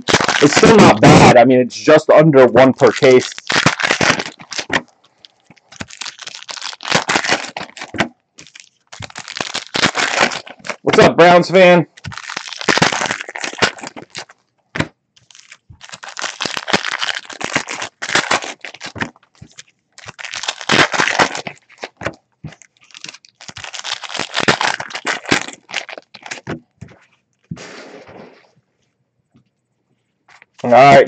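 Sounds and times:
plastic foil tearing and crinkling: 0:00.0 - 0:01.4, 0:02.6 - 0:11.2, 0:11.9 - 0:14.4, 0:15.2 - 0:26.6.

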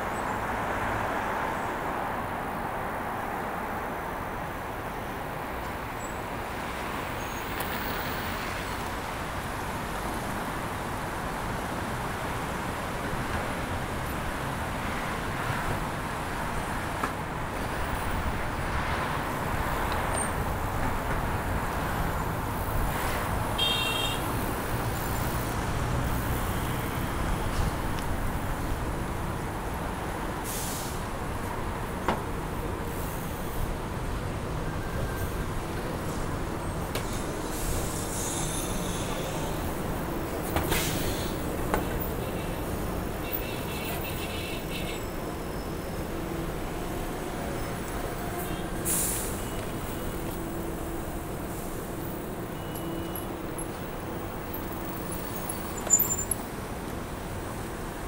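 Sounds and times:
city street traffic: 0:00.0 - 0:58.0.

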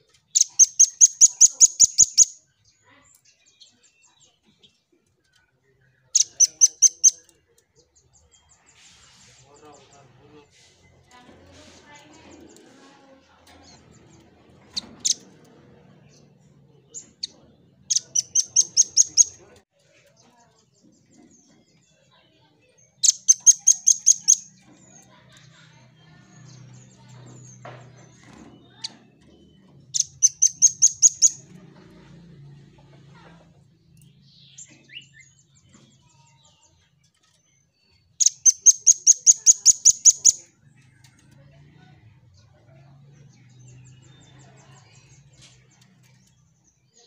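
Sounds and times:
bird singing rapid high notes: 0:00.3 - 0:02.4, 0:06.2 - 0:07.2, 0:17.9 - 0:19.4, 0:23.0 - 0:24.5, 0:30.0 - 0:31.4, 0:38.2 - 0:40.4
sharp bird call notes: 0:38.2 - 0:40.4.

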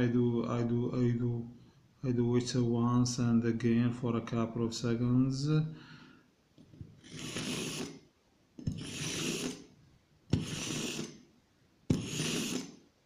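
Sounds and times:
knife scraping through sharpener: 0:07.0 - 0:08.0, 0:08.6 - 0:09.7, 0:10.3 - 0:11.2, 0:11.9 - 0:12.8.

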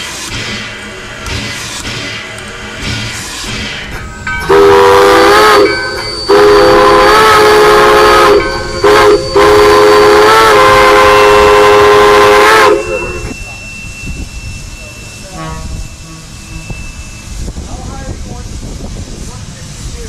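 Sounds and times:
steam locomotive chime whistle: 0:04.2 - 0:17.9.

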